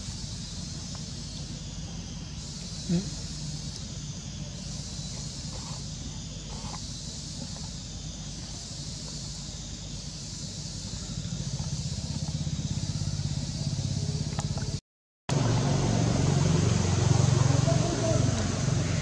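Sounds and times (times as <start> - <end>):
motor vehicle engine running: 10.6 - 19.0.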